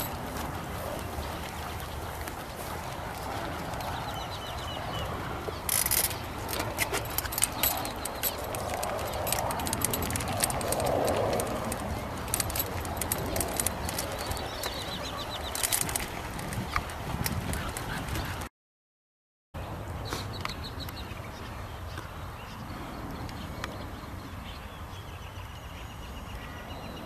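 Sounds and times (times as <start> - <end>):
dog claws clicking on concrete: 5.7 - 14.8
bird chirping: 11.4 - 16.1.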